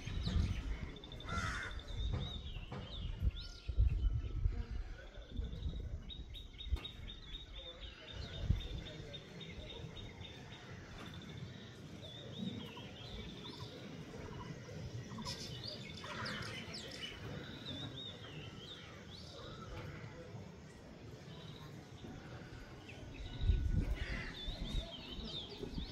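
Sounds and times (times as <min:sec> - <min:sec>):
outdoor background noise: 0:00.0 - 0:25.9
songbirds chirping: 0:00.0 - 0:25.9.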